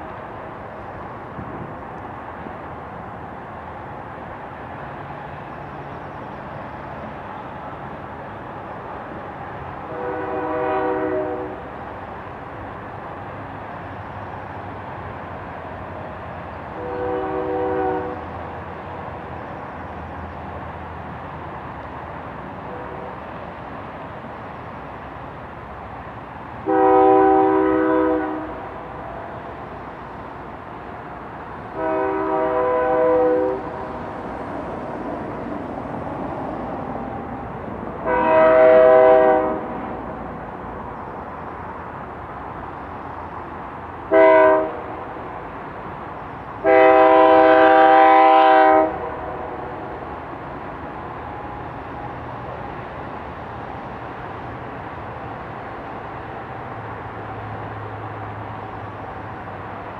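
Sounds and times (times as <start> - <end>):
train rumbling: 0.0 - 59.9
train air horn blasts: 9.8 - 11.7, 16.8 - 18.4, 22.6 - 23.2, 26.6 - 29.4, 31.7 - 33.8, 38.0 - 39.8, 44.1 - 45.0, 46.6 - 49.8.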